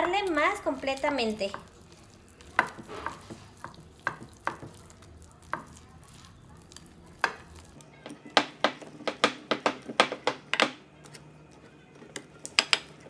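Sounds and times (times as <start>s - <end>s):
batter scraping: 0.0s - 10.0s.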